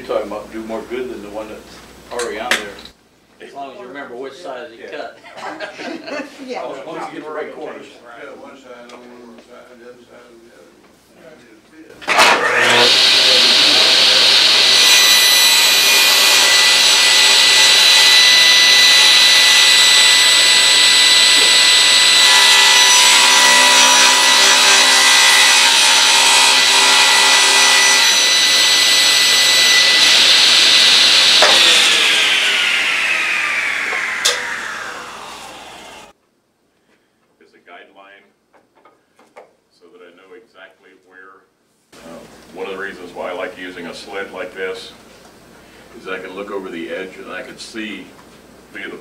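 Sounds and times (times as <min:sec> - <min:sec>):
saw motor winding down: 0:12.1 - 0:36.1
table saw cutting wood: 0:12.1 - 0:36.1.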